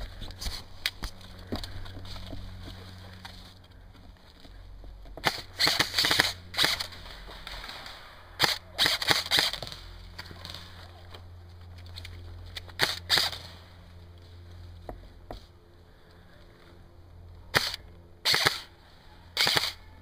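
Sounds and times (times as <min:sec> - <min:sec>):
airsoft rifle firing: 0:05.2 - 0:10.6, 0:12.8 - 0:13.5, 0:17.5 - 0:18.7, 0:19.4 - 0:19.9.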